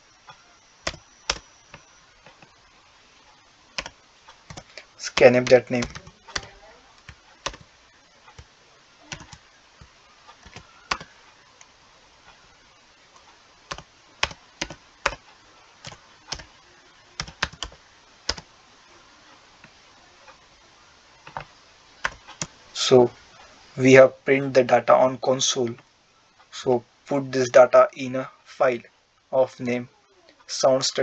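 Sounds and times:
computer keyboard typing: 0:00.3 - 0:02.5, 0:03.8 - 0:07.7, 0:09.1 - 0:11.2, 0:13.2 - 0:16.6, 0:17.2 - 0:18.5, 0:21.2 - 0:22.6.

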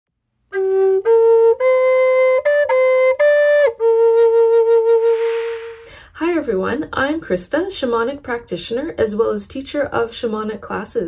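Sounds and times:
wooden flute melody: 0:00.5 - 0:05.8.

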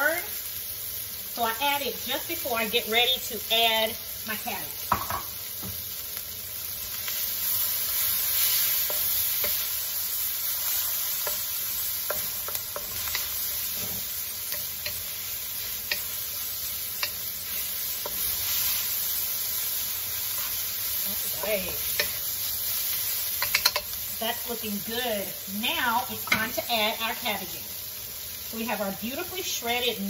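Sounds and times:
vegetables sizzling in oil: 0:00.0 - 0:30.0
spatula scraping pan: 0:07.0 - 0:19.3.

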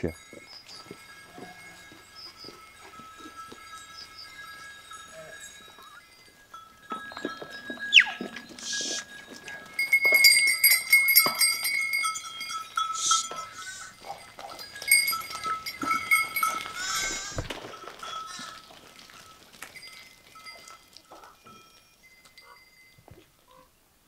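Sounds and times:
small animal bells ringing: 0:00.0 - 0:23.7
sheep bleating: 0:16.7 - 0:17.5.

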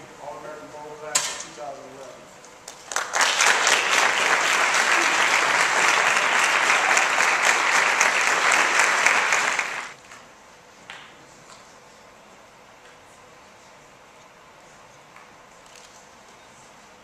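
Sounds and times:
crowd applauding: 0:02.7 - 0:10.0.

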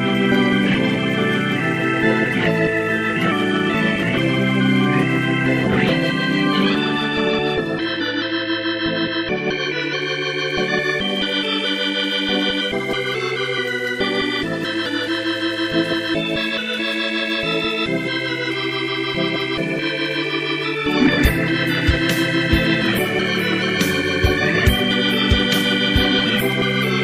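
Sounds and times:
electronic synth chords: 0:00.0 - 0:27.0
steady drum beat: 0:21.0 - 0:26.2.

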